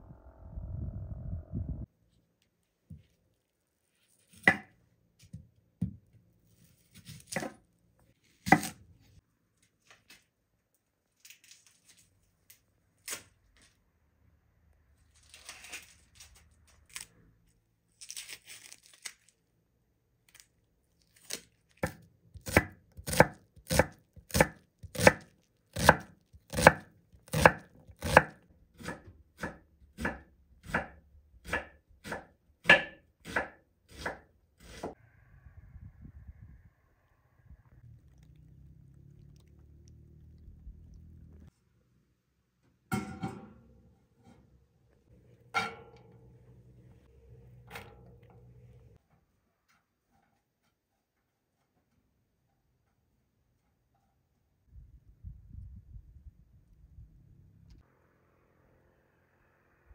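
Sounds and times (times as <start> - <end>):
knife chopping on wooden board: 8.4 - 8.8, 21.8 - 25.2, 25.8 - 34.9
onion skin crackling: 15.1 - 19.5, 20.2 - 28.1.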